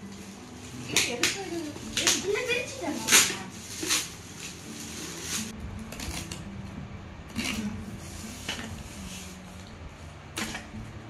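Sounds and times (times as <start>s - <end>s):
foil gift wrap crinkling and tearing: 0.1s - 6.4s.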